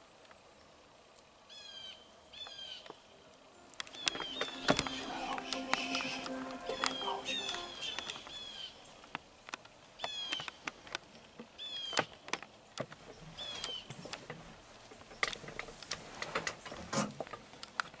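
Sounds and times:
bird chirps bending downward: 3.9s - 8.7s
sharp clicks and crackles: 9.0s - 18.0s.

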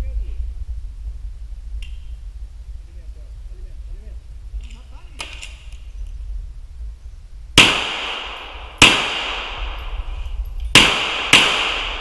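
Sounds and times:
pistol shots with ringing echo: 7.6s - 12.0s.

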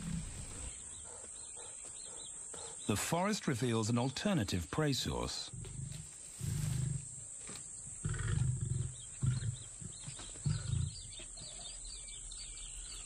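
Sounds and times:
lions grunting: 0.0s - 3.1s, 5.4s - 7.2s, 8.0s - 11.8s.

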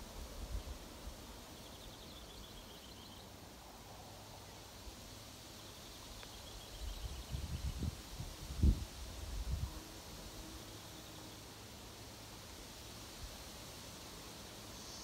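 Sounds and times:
wind rustling leaves: 0.0s - 15.0s
wind rumble on microphone: 6.8s - 9.8s.

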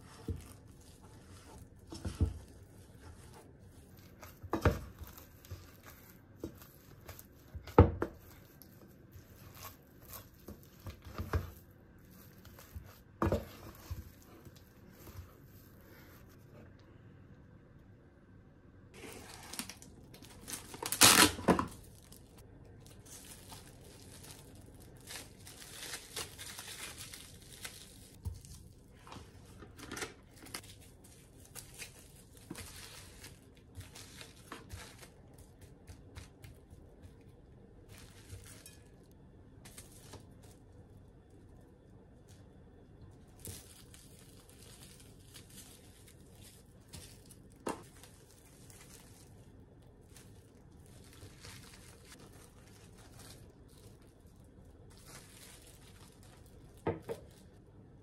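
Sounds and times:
plastic wrap crinkling: 0.0s - 16.4s, 18.9s - 58.0s
cling wrap tearing: 19.0s - 28.7s, 43.3s - 57.5s.

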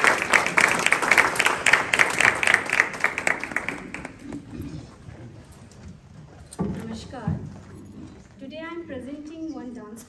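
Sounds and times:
audience applauding: 0.0s - 4.5s.

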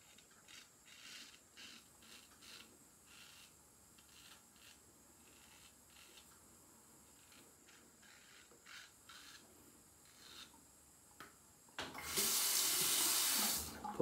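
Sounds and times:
tap water running into sink: 11.8s - 14.0s.

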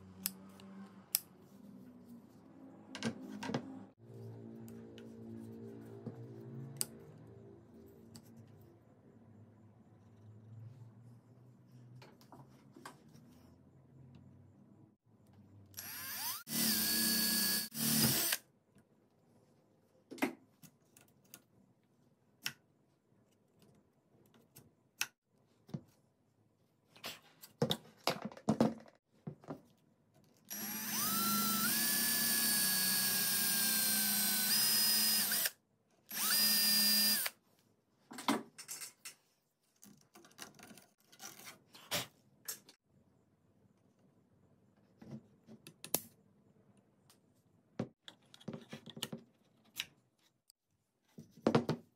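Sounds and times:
electric drill boring plastic pipe: 15.8s - 18.4s, 30.5s - 35.5s, 36.1s - 37.3s.

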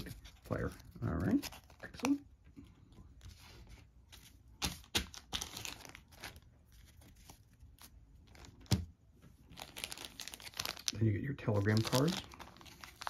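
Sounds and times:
plastic packaging crinkling: 4.7s - 13.0s.

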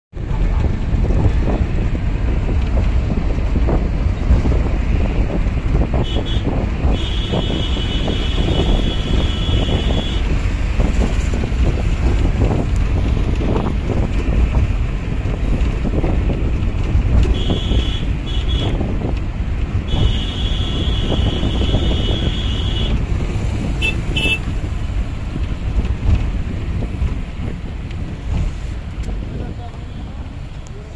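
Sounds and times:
road rumble: 0.1s - 30.9s
wind buffeting microphone: 0.2s - 30.6s
vehicle horn blasts: 6.0s - 10.3s, 17.3s - 18.8s, 19.9s - 23.0s, 23.8s - 24.5s.

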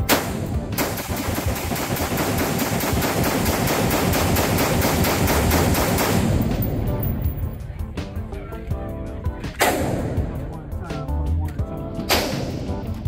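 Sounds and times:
rifle shots indoors: 0.0s - 7.2s.

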